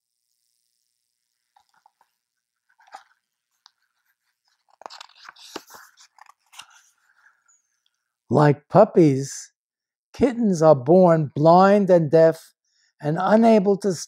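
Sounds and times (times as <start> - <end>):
book pages turning: 1.6 - 7.4.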